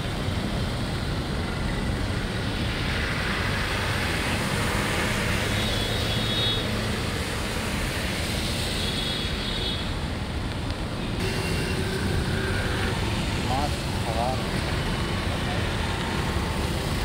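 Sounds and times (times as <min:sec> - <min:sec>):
traffic noise: 0:00.0 - 0:17.0.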